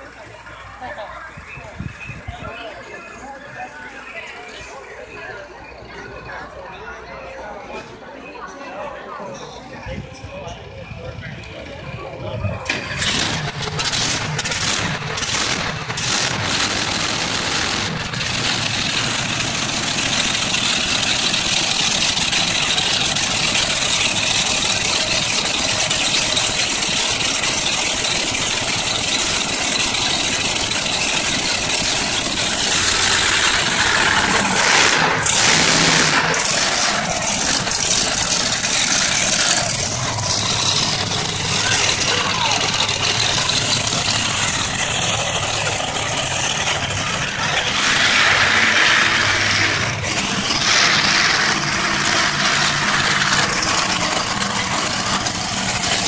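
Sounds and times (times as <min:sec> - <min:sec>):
monster truck engine running: 0:00.0 - 0:56.0
rattle: 0:12.7 - 0:56.0.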